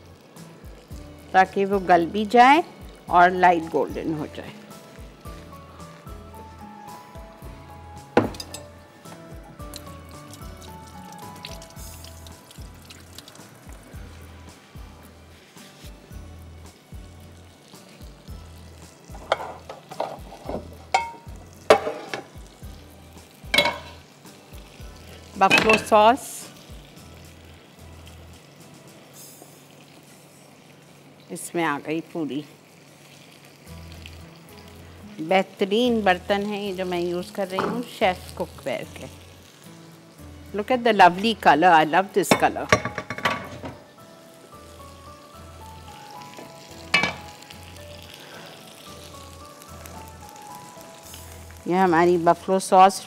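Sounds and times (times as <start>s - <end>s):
food sizzling: 0.0s - 53.0s
soft background music: 0.0s - 53.0s
metal utensil scraping a pan: 19.1s - 22.4s, 23.6s - 24.1s, 25.4s - 26.1s.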